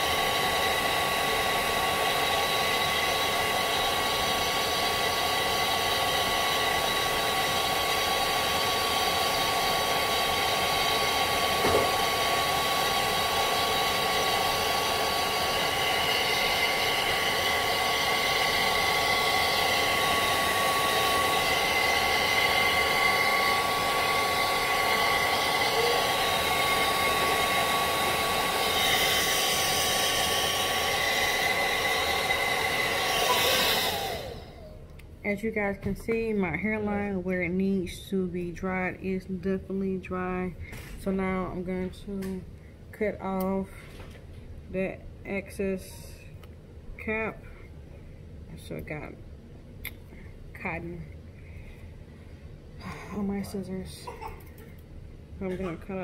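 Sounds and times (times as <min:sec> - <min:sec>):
hair dryer running: 0:00.0 - 0:34.8.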